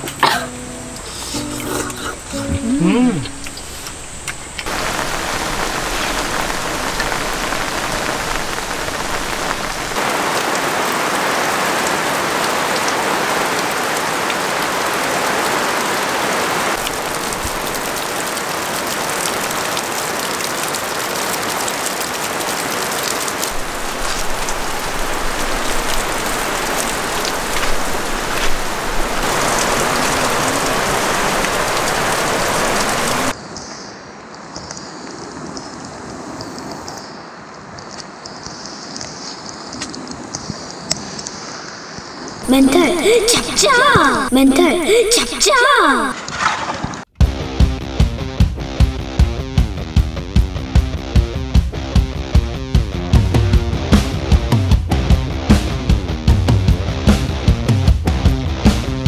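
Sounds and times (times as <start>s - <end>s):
heavy rain falling: 0.0s - 33.5s, 34.1s - 47.1s, 48.4s - 59.0s.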